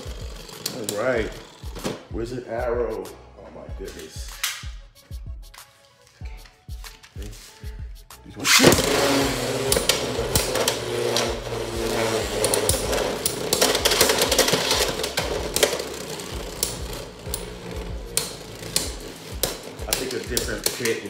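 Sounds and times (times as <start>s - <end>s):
spinning tops clicking and clattering: 0.0s - 1.8s, 8.4s - 21.0s
spinning tops whirring on plastic: 0.0s - 2.1s, 8.4s - 21.0s
spinning top launch burst: 8.4s - 20.2s.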